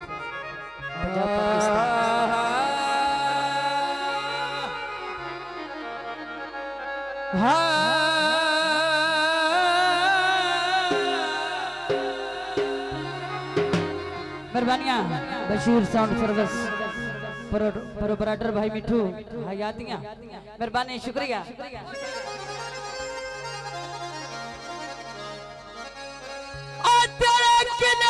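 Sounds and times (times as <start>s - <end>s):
instrumental accompaniment: 0.0s - 20.1s, 21.8s - 28.0s
woman singing through microphone: 1.0s - 4.8s.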